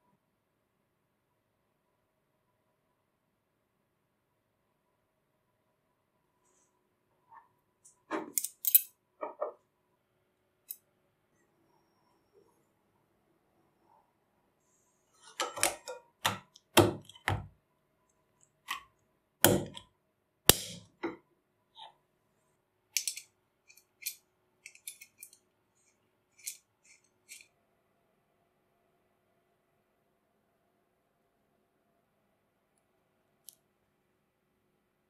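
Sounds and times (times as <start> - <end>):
metal parts clicking and knocking: 8.2 - 9.4, 23.0 - 25.4, 26.4 - 27.5.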